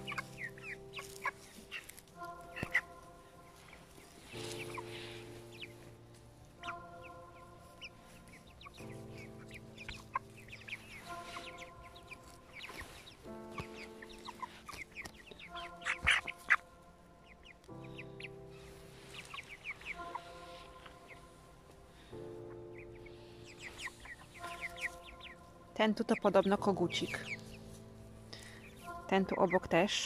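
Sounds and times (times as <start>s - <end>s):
chicks cheeping: 0.0s - 30.0s
music of slow held chords: 0.0s - 30.0s.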